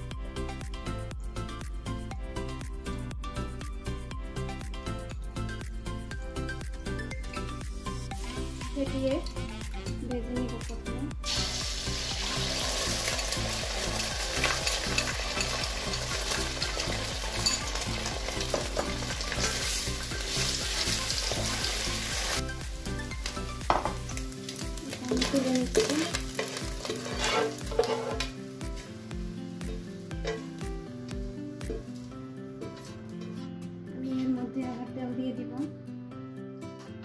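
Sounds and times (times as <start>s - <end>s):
egg sizzling in hot oil: 11.2s - 32.1s
spatula scraping and knocking pan: 25.2s - 28.9s, 29.7s - 30.6s.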